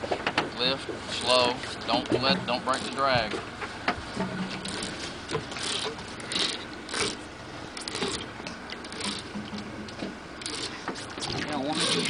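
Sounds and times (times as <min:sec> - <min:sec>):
fishing reel clicking and whirring: 0:02.6 - 0:03.0, 0:04.6 - 0:09.6, 0:10.4 - 0:12.0.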